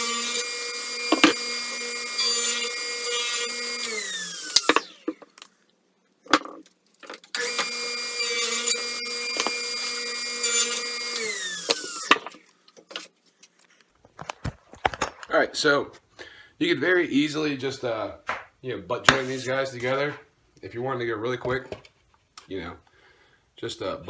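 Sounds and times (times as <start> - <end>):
table saw spinning down: 0.0 - 5.1, 7.4 - 12.2
table saw whining: 0.0 - 5.2, 7.4 - 12.4.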